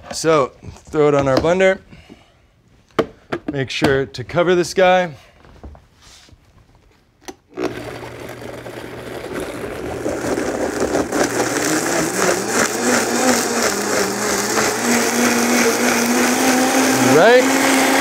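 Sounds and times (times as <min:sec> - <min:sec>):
blender running: 0:07.5 - 0:18.0.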